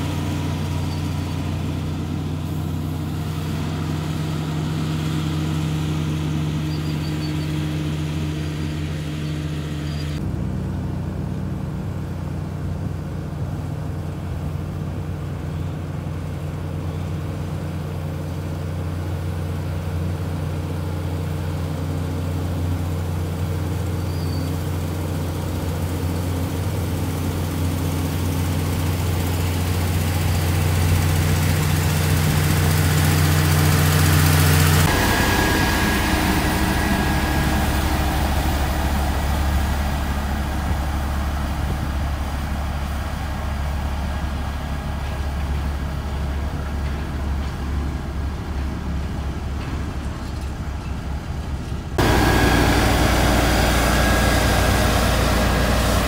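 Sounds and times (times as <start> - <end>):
motor grader engine: 0.0 - 56.0
road rollers humming on gravel: 0.0 - 56.0.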